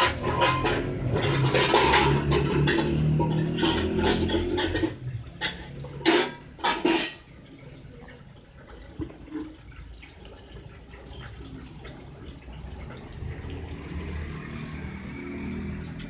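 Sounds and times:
loud clatters: 0.0s - 7.3s
tap water running into sink: 0.0s - 16.0s.

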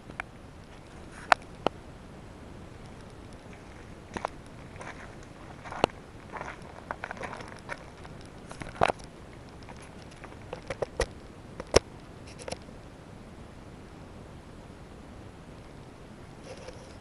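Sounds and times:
light rustling: 0.0s - 1.8s, 2.7s - 12.7s, 16.4s - 17.0s.

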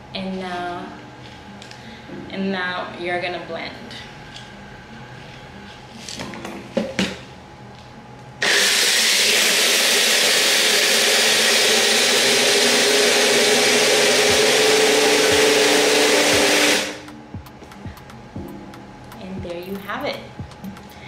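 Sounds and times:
blender motor blending ice: 8.4s - 17.0s.

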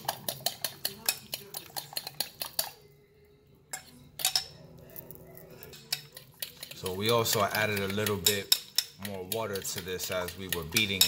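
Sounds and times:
fork beating eggs in glass bowl: 0.0s - 2.9s, 4.3s - 11.0s.

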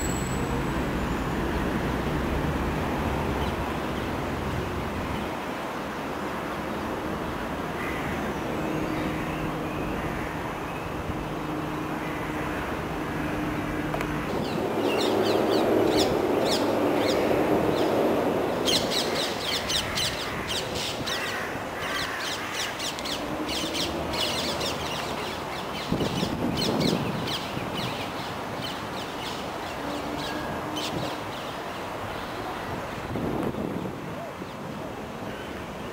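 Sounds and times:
birds chirping: 7.8s - 33.0s.

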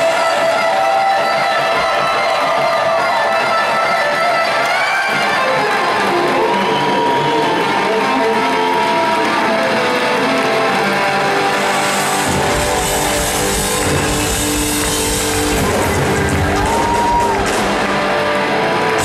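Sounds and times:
electric guitar solo: 0.0s - 19.0s
bass guitar: 9.3s - 19.0s.

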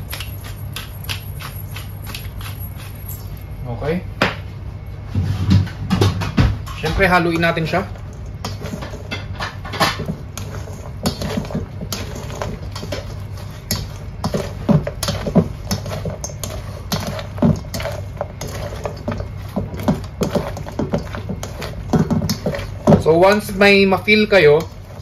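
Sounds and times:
spoon scraping metal bowl: 7.0s - 25.0s.

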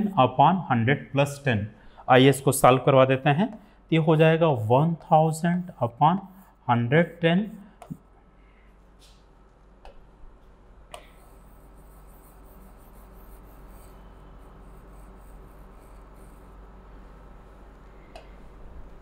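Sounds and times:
steady low hum: 0.0s - 19.0s
handwriting strokes on board: 11.0s - 16.6s.

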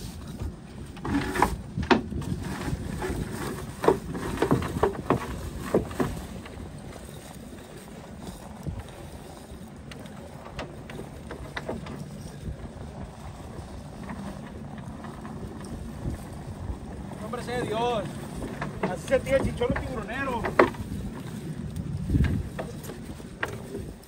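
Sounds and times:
wind and water rumble: 0.0s - 24.0s
fishing gear knocking on boat: 1.1s - 6.5s, 17.3s - 21.3s.

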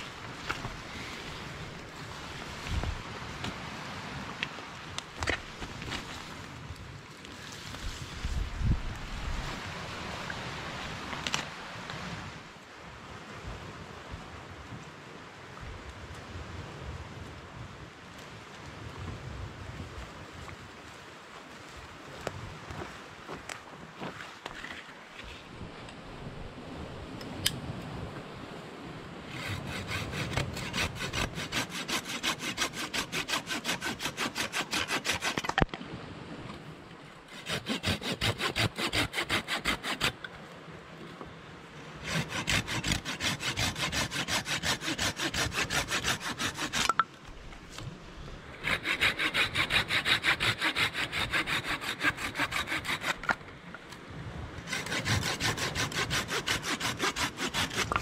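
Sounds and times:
saw rasping through branch: 0.0s - 2.0s, 29.3s - 35.7s, 37.3s - 40.2s, 42.0s - 47.1s, 48.6s - 53.4s, 54.7s - 58.0s.

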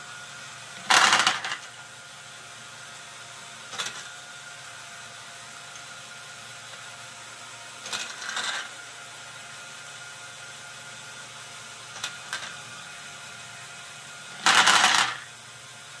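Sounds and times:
motor and gears whirring: 0.0s - 16.0s
plastic balls rolling and rattling: 0.8s - 1.7s, 7.9s - 8.7s, 14.4s - 15.3s
plastic balls clattering: 0.9s - 1.6s, 14.4s - 15.3s.

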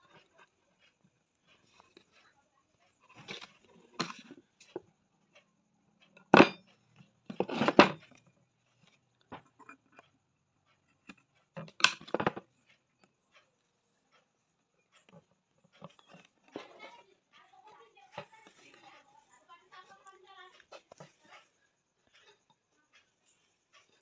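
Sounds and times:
metal objects clattering on a tabletop: 3.0s - 4.8s, 6.2s - 10.0s, 11.0s - 12.8s, 15.0s - 17.0s
faint ticks: 12.5s - 24.0s.

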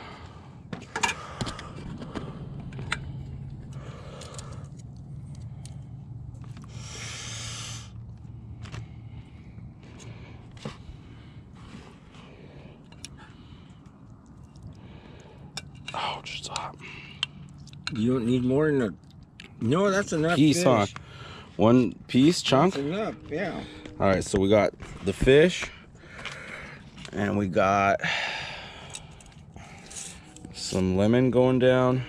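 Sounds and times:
low steady hum: 0.0s - 32.0s.

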